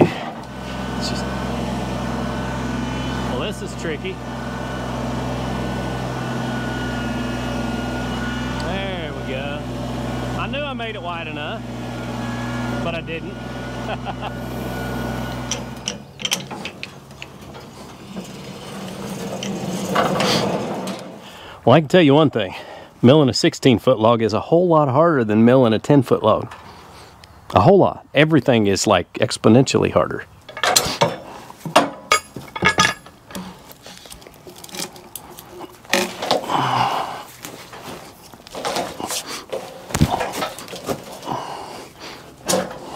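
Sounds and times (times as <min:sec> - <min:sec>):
engine running: 0:00.0 - 0:21.6, 0:30.5 - 0:42.9
sharp mechanical clicks and knocks: 0:15.4 - 0:21.2
metallic clinks and knocks: 0:15.5 - 0:17.8, 0:30.5 - 0:33.6.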